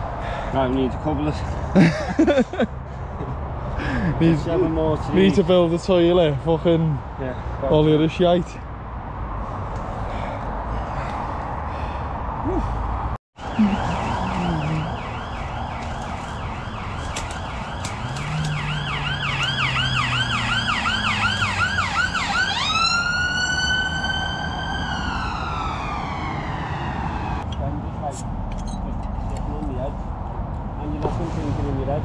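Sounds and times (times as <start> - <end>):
road traffic noise: 0.0 - 32.0
emergency vehicle siren: 13.4 - 27.4.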